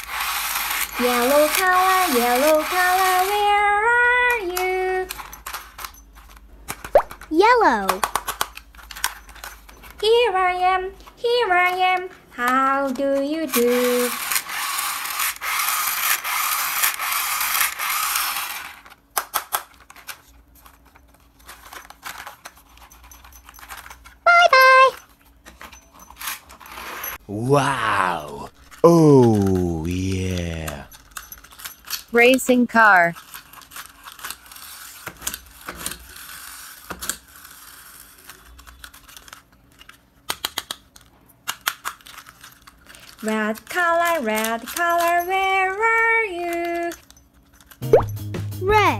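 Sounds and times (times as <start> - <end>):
plastic toy scraping: 0.0 - 3.7, 12.8 - 19.0, 26.0 - 27.2, 33.2 - 39.4
toy car parts clicking and rattling: 0.0 - 10.3, 11.5 - 27.2, 28.6 - 47.8.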